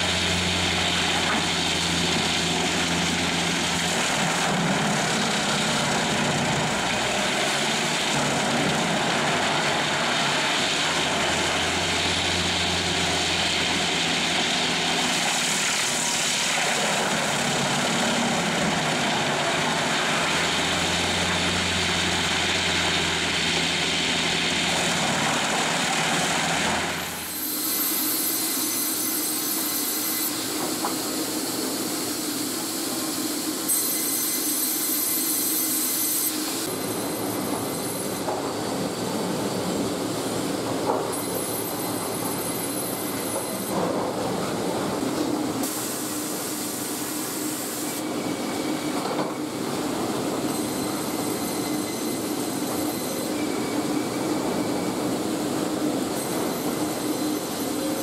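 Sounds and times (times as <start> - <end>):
conveyor machinery din: 0.0 - 58.0
high machine whine: 0.0 - 58.0.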